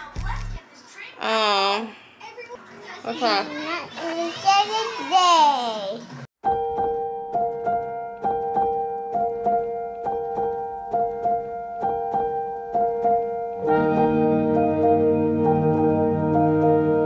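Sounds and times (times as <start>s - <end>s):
gentle piano music: 6.4s - 17.0s.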